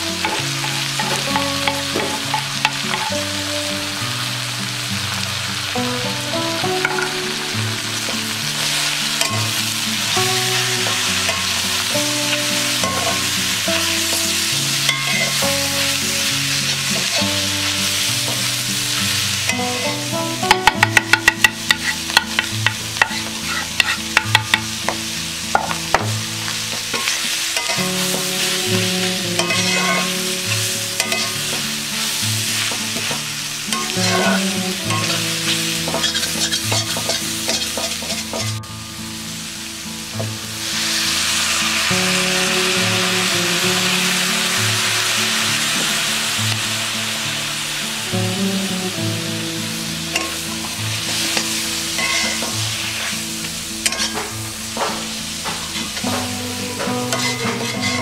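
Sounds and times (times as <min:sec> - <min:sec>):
squid sizzling in oil: 0:00.0 - 0:58.0
spatula clanking against pan: 0:12.8 - 0:13.3, 0:14.9 - 0:15.4, 0:20.4 - 0:26.1, 0:26.7 - 0:28.2, 0:29.4 - 0:30.1, 0:31.0 - 0:31.6, 0:33.0 - 0:34.3, 0:35.8 - 0:38.6, 0:52.0 - 0:52.6, 0:53.8 - 0:58.0
metal spatula scraping pan: 0:20.6 - 0:24.7, 0:29.3 - 0:30.2, 0:31.0 - 0:31.4, 0:33.7 - 0:35.3, 0:35.9 - 0:38.5, 0:51.1 - 0:53.2, 0:53.8 - 0:58.0.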